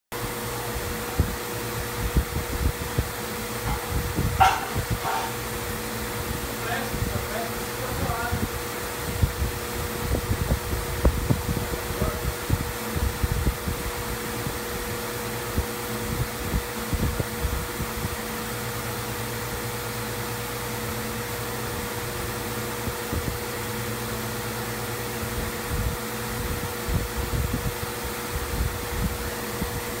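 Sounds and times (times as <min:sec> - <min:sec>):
misting fan whirring: 0:00.1 - 0:30.0
low buffeting: 0:01.0 - 0:13.7.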